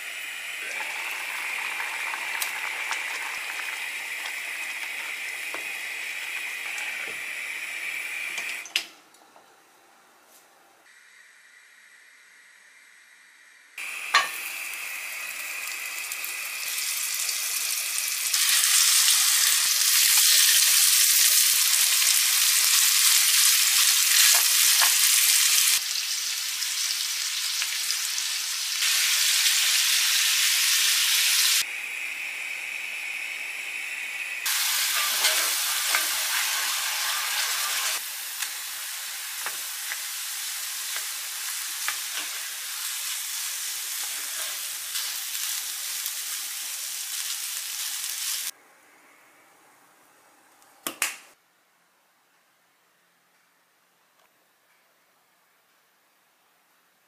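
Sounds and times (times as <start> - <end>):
beef sizzling in oil: 0.0 - 8.7, 13.8 - 48.5
rice frying in oil: 0.0 - 8.7, 13.8 - 31.7, 33.9 - 48.6.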